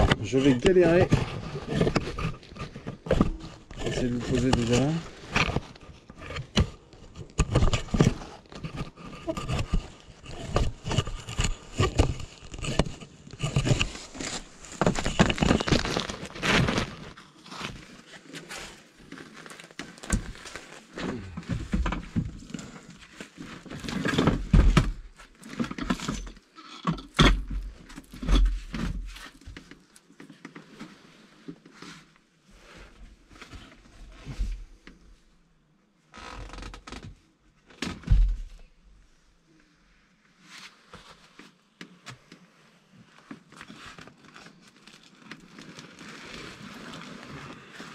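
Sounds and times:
rustling and scraping: 0:00.0 - 0:35.3, 0:37.9 - 0:47.9.

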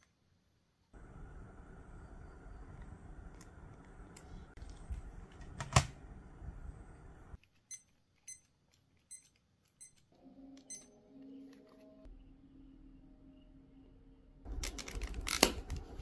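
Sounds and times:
device handling rumble: 0:14.5 - 0:16.0.

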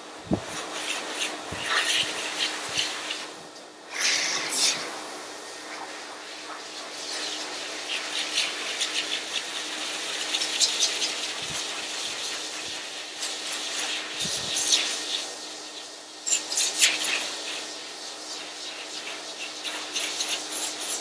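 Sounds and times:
dryer air rushing: 0:00.0 - 0:08.1.

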